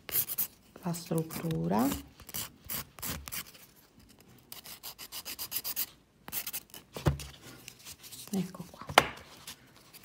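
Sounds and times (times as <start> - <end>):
nail file rasping on nail: 4.5 - 6.6.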